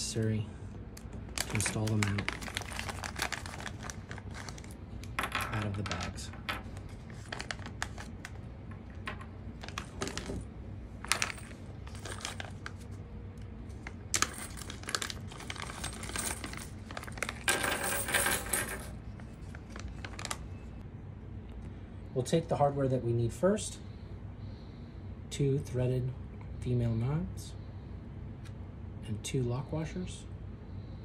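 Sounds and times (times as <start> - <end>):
plastic bags crinkling: 1.2 - 4.8, 6.8 - 8.4, 9.6 - 13.0, 13.8 - 17.5, 19.5 - 20.5
small parts clattering onto tabletop: 5.2 - 6.6.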